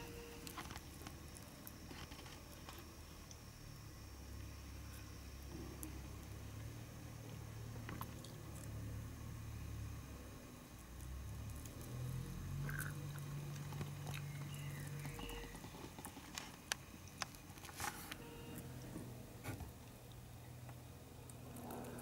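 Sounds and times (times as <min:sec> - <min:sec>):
low steady hum: 0:00.0 - 0:22.0
hornet scratching and clicking on nest: 0:12.8 - 0:18.6.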